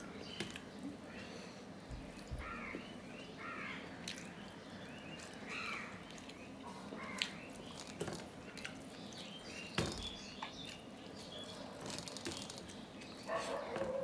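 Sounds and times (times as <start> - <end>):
chewing: 5.1 - 9.0.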